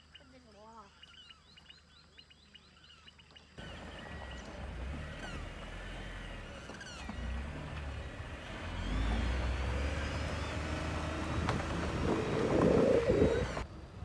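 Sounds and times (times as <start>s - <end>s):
vehicle driving on gravel: 3.6s - 14.0s.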